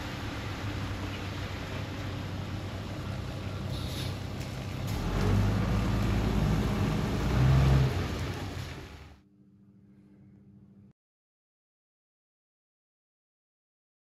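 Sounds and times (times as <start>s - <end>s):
bus engine accelerating: 0.0s - 9.2s.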